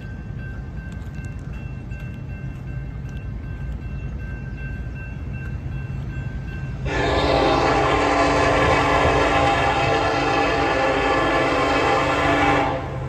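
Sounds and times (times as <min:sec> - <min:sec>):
crossing signal bell ringing: 0:00.0 - 0:10.8
locomotive air horn: 0:06.8 - 0:13.0.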